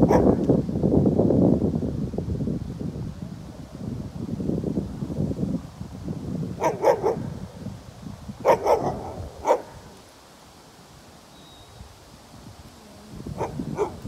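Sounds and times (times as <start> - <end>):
dog barking: 0.0 - 0.4, 6.6 - 7.4, 8.4 - 10.0, 13.4 - 14.0.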